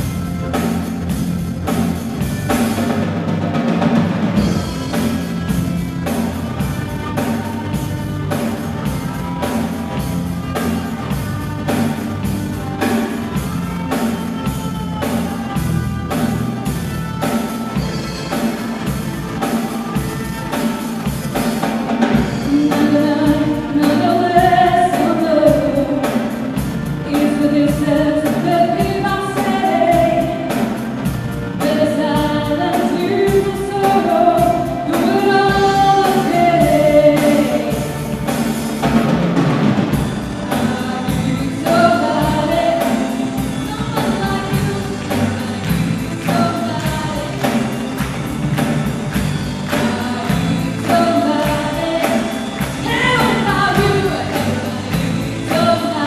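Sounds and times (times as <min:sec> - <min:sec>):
live band playing: 0:00.0 - 0:56.0
woman singing lead vocal: 0:22.1 - 0:30.8, 0:31.5 - 0:38.1, 0:40.4 - 0:47.8, 0:49.6 - 0:56.0.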